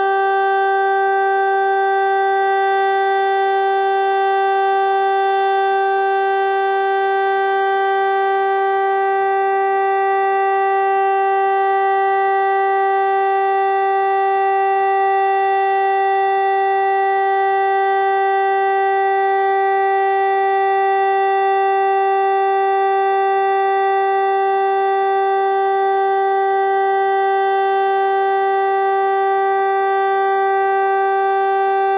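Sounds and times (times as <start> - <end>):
siren continuous tone: 0.0 - 31.9.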